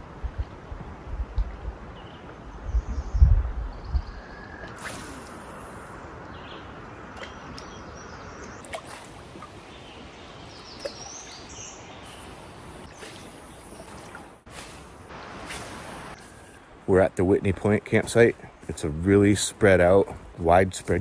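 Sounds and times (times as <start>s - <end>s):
outdoor background noise: 0.0s - 21.0s
high bird chirps: 7.2s - 14.8s.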